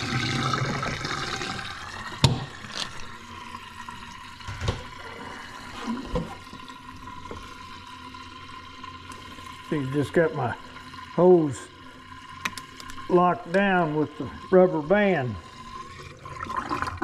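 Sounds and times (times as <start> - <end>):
water draining from sink: 0.0 - 17.0.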